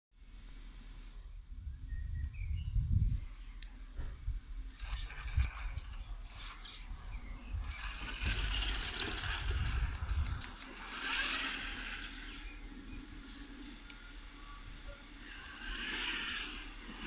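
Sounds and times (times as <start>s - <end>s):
gears clicking and rattling: 3.6s - 14.0s, 15.1s - 17.0s
rc car motor whine: 4.5s - 17.0s.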